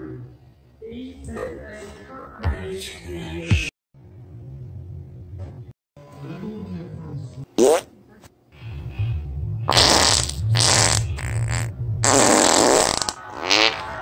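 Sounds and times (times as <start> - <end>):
rising fart squeak: 9.7 - 13.8
loud buzzy fart blasts: 9.7 - 14.0.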